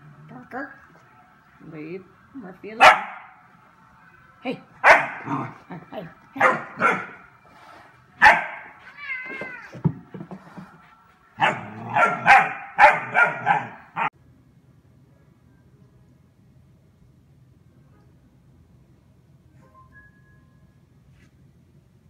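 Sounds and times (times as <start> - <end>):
puppy barking: 2.8 - 3.4, 4.8 - 5.6, 6.4 - 7.2, 8.2 - 8.8, 11.4 - 14.1.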